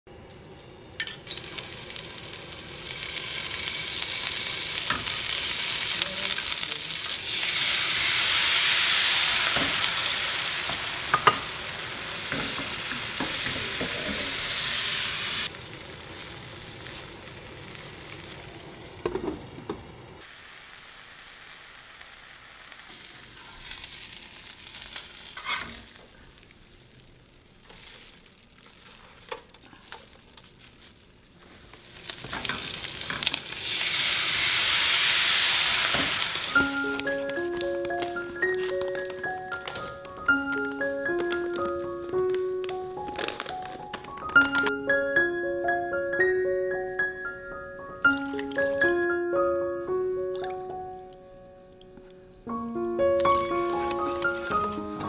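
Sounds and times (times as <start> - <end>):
batter sizzling in a frying pan: 1.3 - 37.6.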